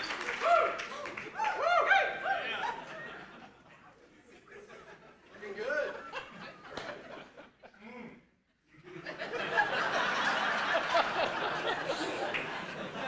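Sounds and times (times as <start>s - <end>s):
audience laughing: 2.2s - 8.0s, 8.7s - 13.0s.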